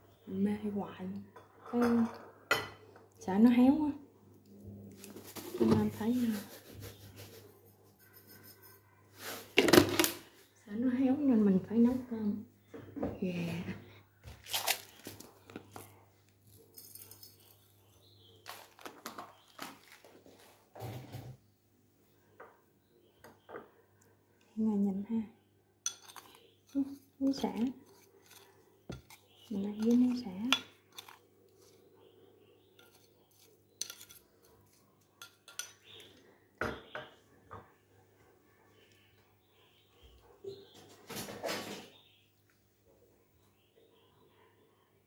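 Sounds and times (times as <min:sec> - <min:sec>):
metal spoon clinking on ceramic bowl: 0:25.8 - 0:26.4.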